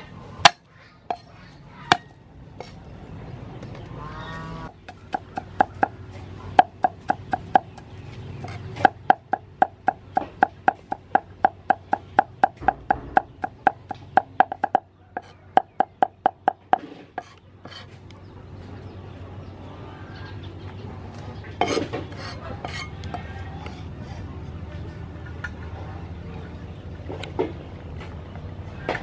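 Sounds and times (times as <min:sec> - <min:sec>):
cleaver chopping on wooden block: 0:04.9 - 0:05.9, 0:06.6 - 0:07.8, 0:08.4 - 0:17.8.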